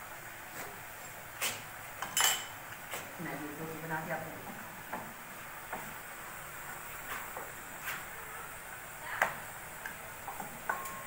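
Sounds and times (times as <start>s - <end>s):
steady hiss: 0.0s - 11.0s
pots and utensils knocking: 10.3s - 11.0s.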